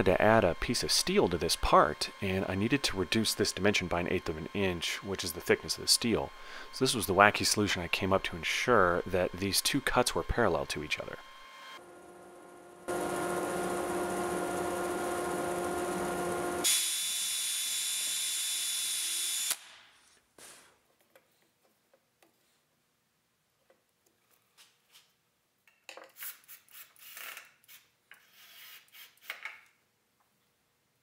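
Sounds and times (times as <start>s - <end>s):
bandsaw cutting wood: 0.2s - 11.7s, 12.9s - 19.7s.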